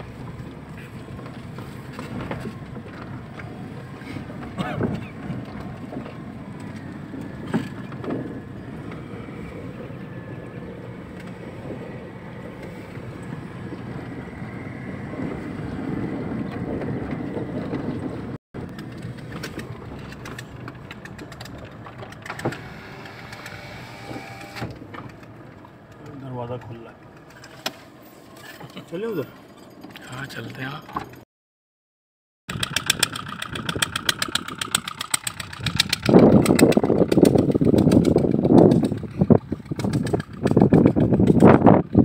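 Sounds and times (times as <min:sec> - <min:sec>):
engine and tyres rumbling: 0:00.0 - 0:31.2, 0:32.5 - 0:42.0
knocks and rattles: 0:16.5 - 0:22.7, 0:32.5 - 0:42.0.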